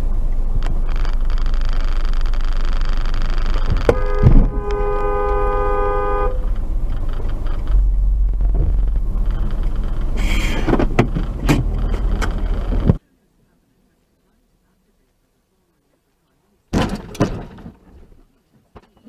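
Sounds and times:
car rumble from inside cabin: 0:00.0 - 0:13.0
car horn: 0:03.7 - 0:11.0.

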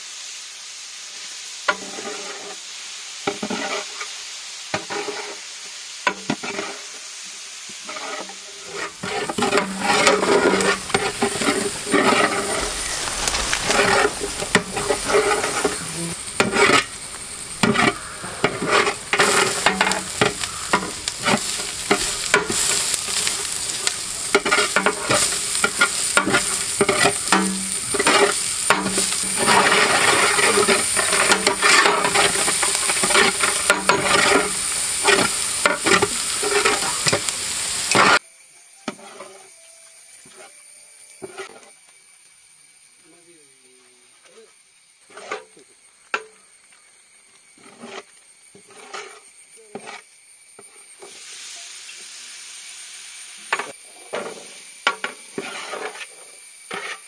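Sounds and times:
vegetables sizzling in oil: 0:00.0 - 0:43.0, 0:44.6 - 0:57.0
metal ladle scraping a pot: 0:07.8 - 0:37.2, 0:55.0 - 0:57.0.

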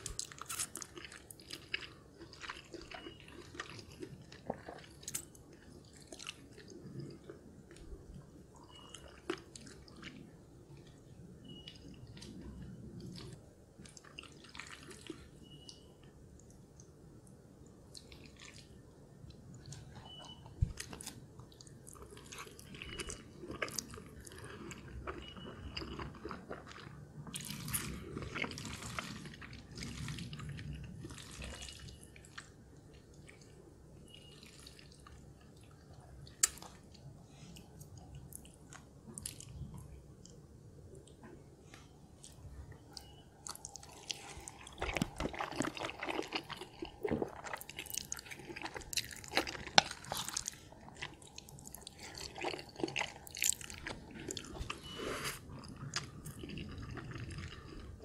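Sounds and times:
chewing and mouth smacks: 0:00.0 - 0:15.8, 0:17.8 - 0:40.4, 0:41.0 - 0:58.0.

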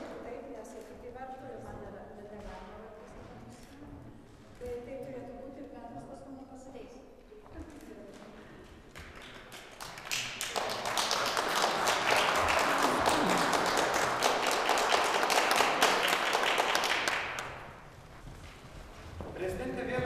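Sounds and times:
audience applauding: 0:08.9 - 0:17.9.

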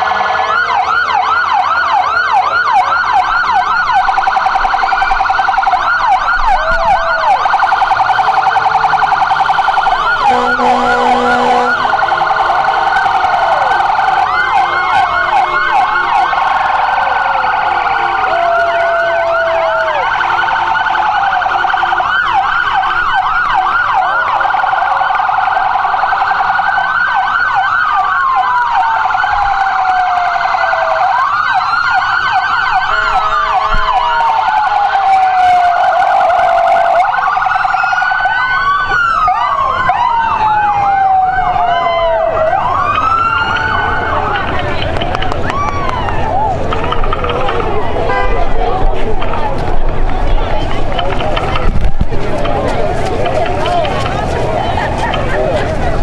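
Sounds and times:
emergency sirens wailing: 0:00.0 - 0:56.0
horn blast: 0:07.7 - 0:16.4, 0:48.0 - 0:48.9.

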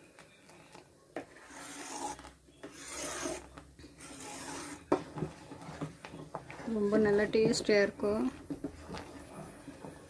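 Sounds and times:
ladle scraping steel pan: 0:01.3 - 0:05.9.

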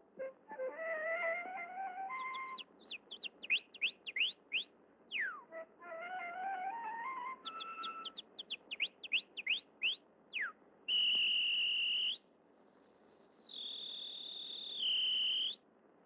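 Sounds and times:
whistled bird chirps: 0:00.2 - 0:15.6
high whistle notes: 0:10.9 - 0:12.2, 0:13.6 - 0:15.6.

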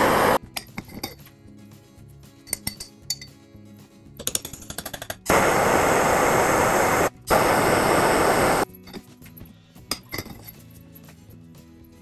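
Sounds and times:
gas torch flame hissing: 0:00.0 - 0:00.4, 0:05.3 - 0:08.7
background music: 0:00.2 - 0:12.0
metal tools clinking: 0:08.8 - 0:10.9.

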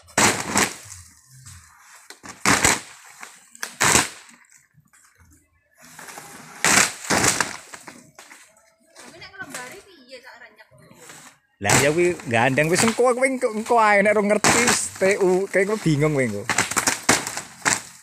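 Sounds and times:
plywood sheets slapping down: 0:00.0 - 0:01.1, 0:02.1 - 0:04.6, 0:05.9 - 0:08.4, 0:11.6 - 0:18.0.

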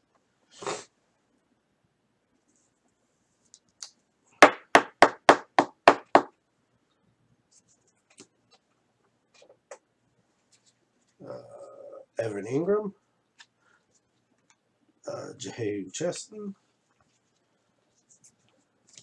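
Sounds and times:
sharp knocks: 0:04.4 - 0:06.3.

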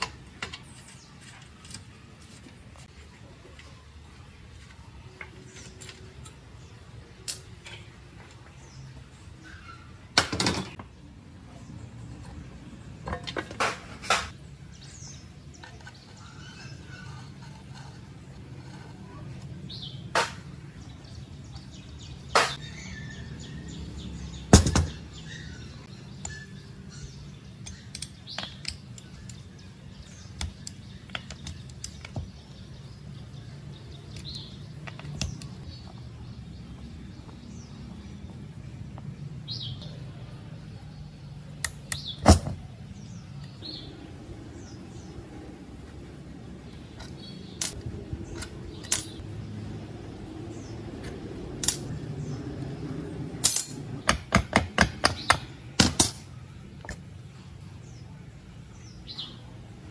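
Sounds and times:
metal tool scraping rust: 0:15.6 - 0:19.5
sharp metal knocks: 0:22.3 - 0:22.6, 0:24.5 - 0:25.1, 0:53.4 - 0:56.3.

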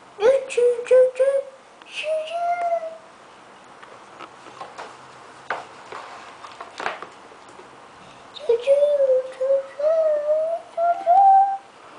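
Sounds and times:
toddler humming a hooting tone: 0:02.2 - 0:03.1, 0:08.4 - 0:11.7.

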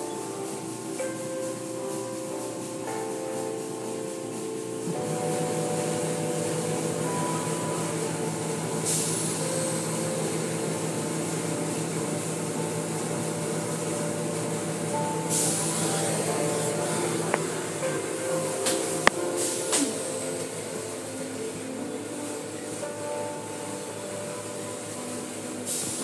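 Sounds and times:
car wash machinery hum: 0:00.0 - 0:26.0.

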